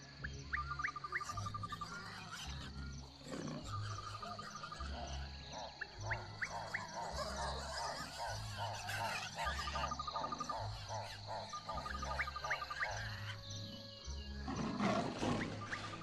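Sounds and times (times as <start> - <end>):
birds chirping and trilling: 0.0 - 16.0
leopard growling low: 2.4 - 5.7, 14.5 - 15.7.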